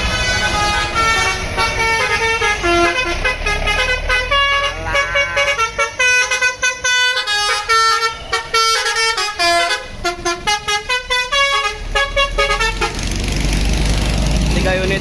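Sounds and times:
musical air horn playing a tune: 0.0s - 13.0s.

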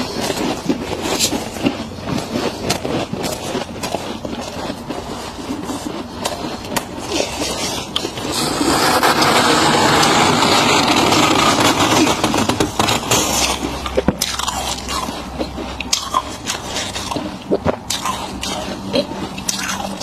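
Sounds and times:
gloved hand scraping frost: 0.0s - 14.9s
frost crackling: 6.1s - 17.3s.

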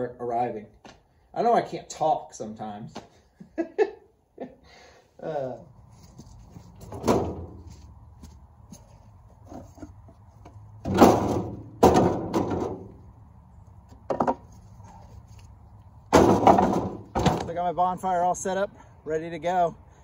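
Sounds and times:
wooden boards clattering: 6.8s - 7.6s, 10.8s - 13.0s, 14.1s - 14.5s, 16.1s - 17.6s.

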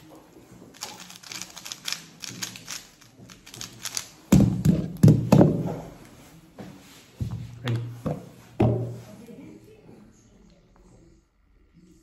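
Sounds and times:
plastic cube clicking: 0.8s - 4.1s.

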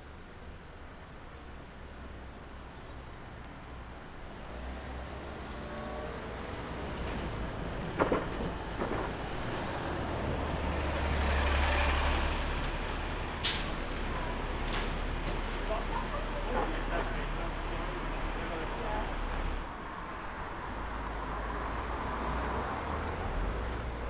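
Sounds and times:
large vehicle passing: 4.4s - 19.7s
short sharp hiss: 13.4s - 14.1s.

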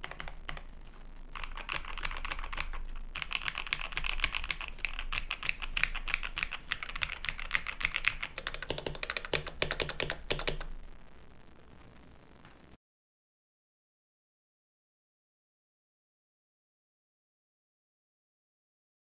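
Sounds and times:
mechanical keyboard typing: 0.0s - 0.7s, 1.3s - 10.7s
faint hiss: 0.0s - 12.8s.

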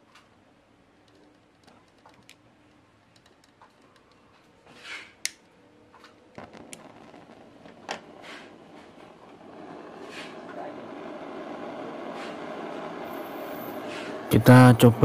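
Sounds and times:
gas hissing: 6.3s - 15.0s
gas torch flame rushing hiss: 6.4s - 15.0s.

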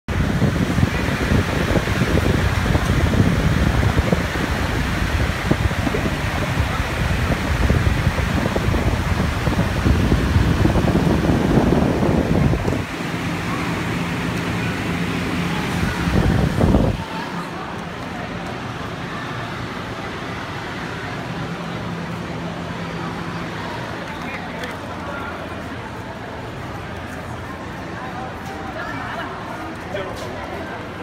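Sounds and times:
wind buffeting microphone: 0.1s - 14.7s, 15.3s - 17.1s
air cooler fan blowing: 0.1s - 31.0s.

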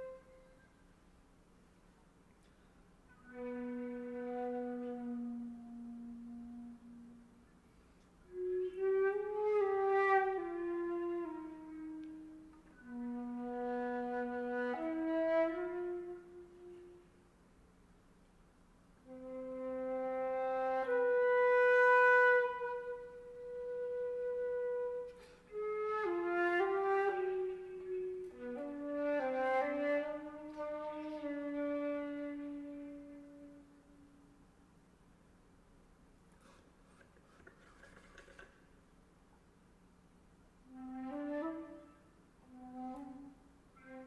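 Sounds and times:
solo flute playing: 0.0s - 0.9s, 3.0s - 17.3s, 19.0s - 34.4s, 40.6s - 44.0s
breath: 7.6s - 8.2s, 25.1s - 25.5s, 36.3s - 37.6s.

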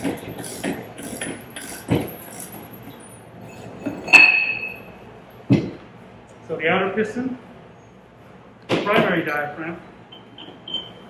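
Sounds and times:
ratchet wrench clicking: 0.0s - 3.2s.

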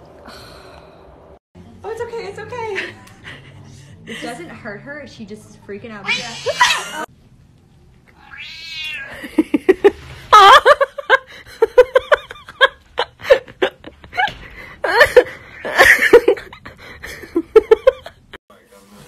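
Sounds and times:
cat meowing and yowling: 6.0s - 6.8s, 8.2s - 9.2s.

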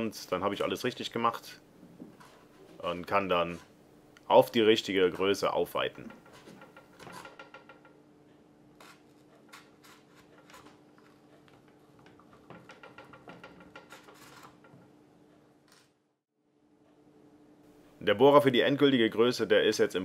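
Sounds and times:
faint steady hum: 0.0s - 13.0s, 14.2s - 20.0s
hands rubbing tape: 8.8s - 11.6s, 13.8s - 14.6s.

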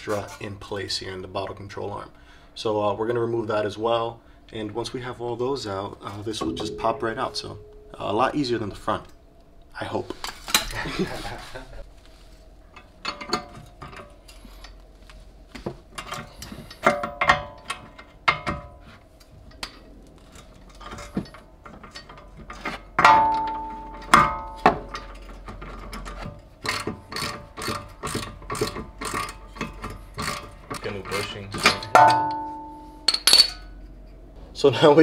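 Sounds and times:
ringing metal clanks: 6.0s - 9.2s, 23.0s - 25.4s, 31.1s - 33.8s
hand ratchet clicking: 26.6s - 31.8s.

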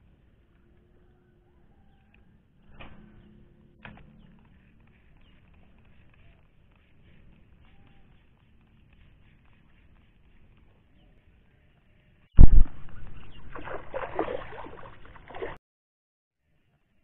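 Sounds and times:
crackling rustling noise: 4.0s - 11.4s
loud thump: 12.4s - 13.6s.

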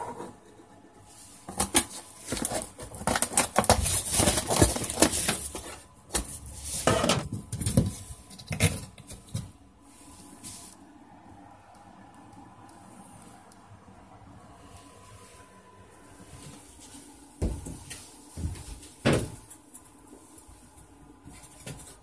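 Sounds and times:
cardboard scraping and rustling: 1.3s - 9.5s.

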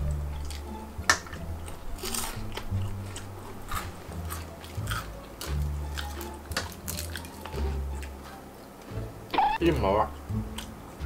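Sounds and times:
background music with bass: 0.0s - 11.0s
chewing and biting: 0.3s - 8.4s
fork clicking on plates: 0.4s - 8.2s.

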